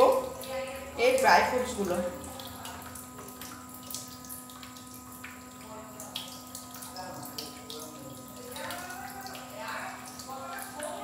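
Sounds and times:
food sizzling and bubbling in pan: 0.0s - 11.0s.

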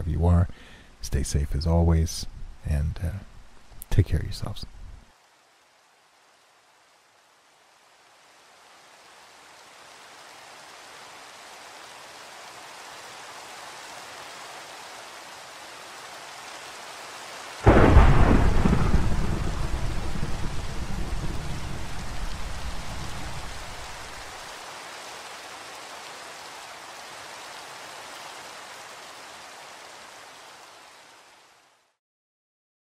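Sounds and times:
rain hissing: 0.1s - 32.0s
thunderclap rumbling: 17.6s - 24.2s.

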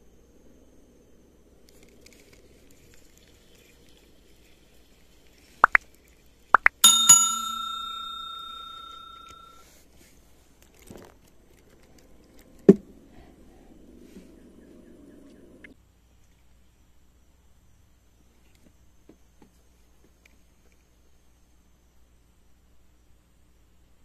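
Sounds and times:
small metal bell ringing: 6.7s - 9.6s.

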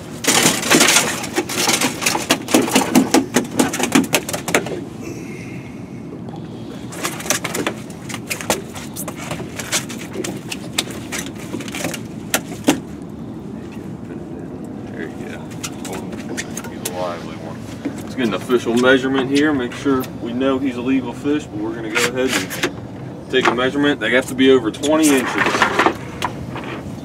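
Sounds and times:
fish flopping and slapping on deck: 0.1s - 4.8s, 6.9s - 13.0s.

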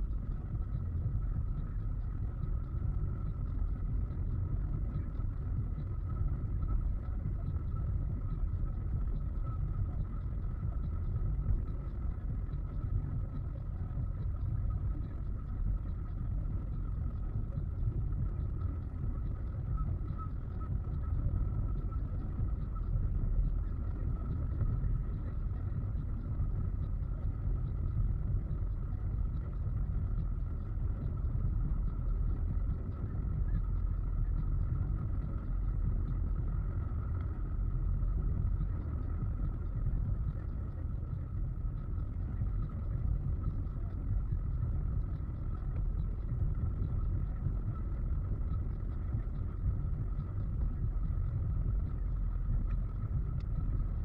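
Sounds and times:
faint high whine: 0.0s - 54.0s.

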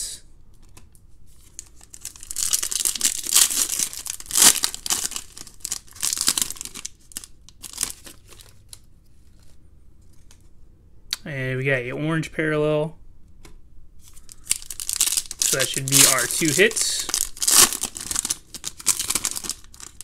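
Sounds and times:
wrapper tearing and crinkling: 1.4s - 8.9s, 14.0s - 20.0s.

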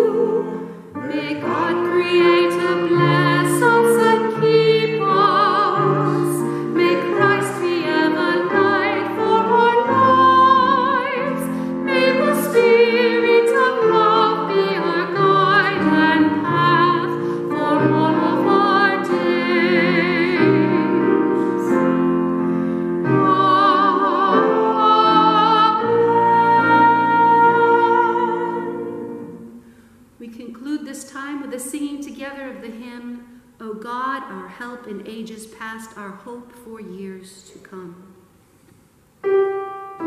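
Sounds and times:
woman singing with vibrato: 0.0s - 21.4s, 23.0s - 29.1s
instrumental accompaniment: 39.2s - 40.0s.

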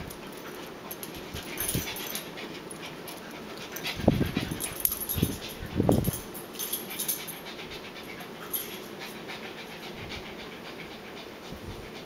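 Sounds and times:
dog panting: 0.1s - 12.0s.

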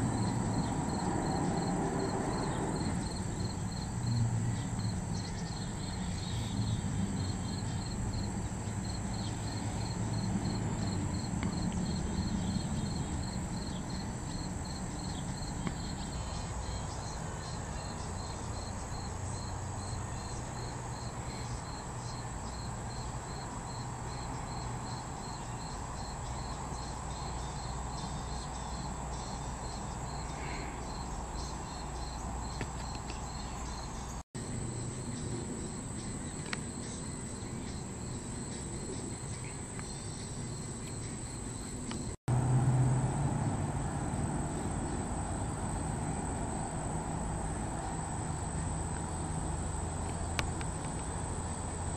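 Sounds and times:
crickets chirping: 0.0s - 51.9s
high insect hiss: 0.0s - 51.9s.

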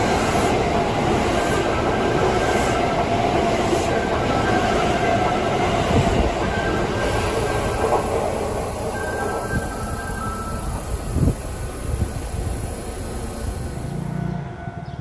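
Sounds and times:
train wheels rumbling on rails: 0.0s - 14.1s
faint high whine: 6.4s - 14.0s.

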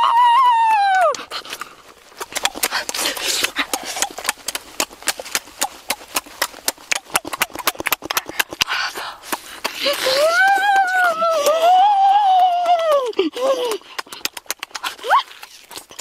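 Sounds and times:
wet smacking of eating: 1.0s - 11.6s, 12.9s - 16.0s
child's high vocal sound: 9.8s - 13.8s.

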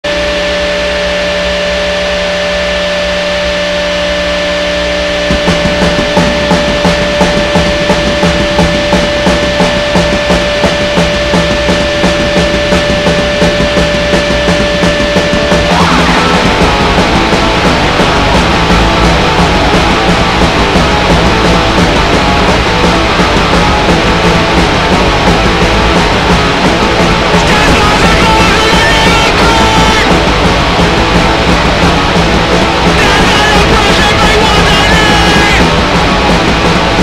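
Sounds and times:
distorted guitar tone: 0.0s - 37.0s
punk band playing: 0.0s - 37.0s
fast drum beat: 5.2s - 37.0s.

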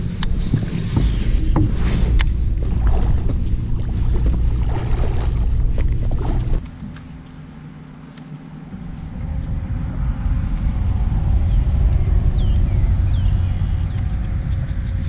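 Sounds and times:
low rumble on microphone: 0.0s - 7.6s, 8.6s - 15.0s
fish splashing and thrashing in water: 0.4s - 6.6s.

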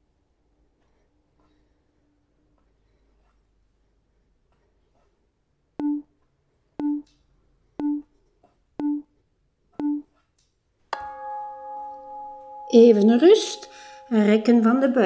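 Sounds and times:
low electronic timer beeps: 5.8s - 6.1s, 6.8s - 7.1s, 7.8s - 8.1s, 8.8s - 9.1s, 9.8s - 10.1s.

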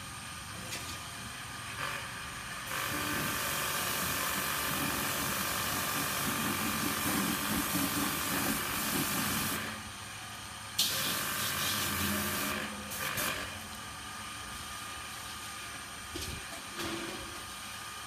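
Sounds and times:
water hissing from garden hose: 3.0s - 9.7s, 10.8s - 13.5s.

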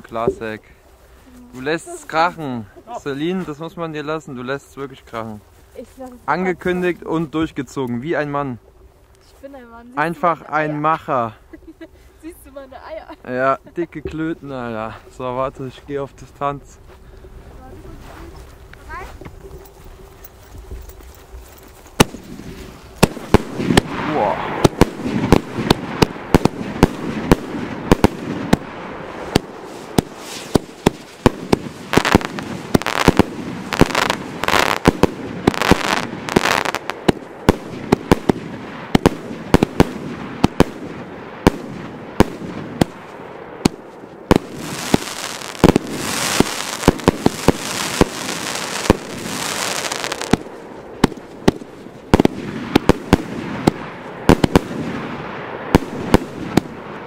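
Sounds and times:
firework hissing: 22.0s - 38.4s, 44.3s - 51.2s
firework launch pops and bursts: 22.0s - 57.0s.

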